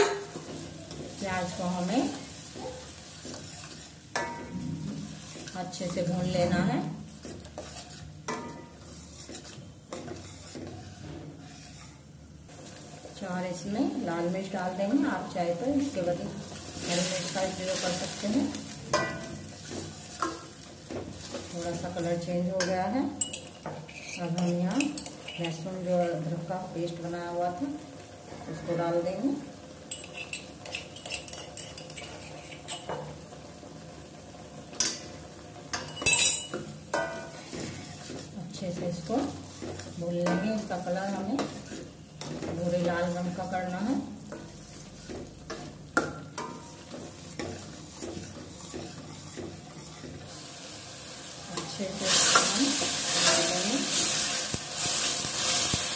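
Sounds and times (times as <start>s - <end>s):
ladle scraping a pan: 0.0s - 12.1s, 23.2s - 25.6s, 29.9s - 32.9s, 46.4s - 50.5s
onion paste sizzling in oil: 0.0s - 55.9s
ladle scraping a steel pan: 7.4s - 12.0s.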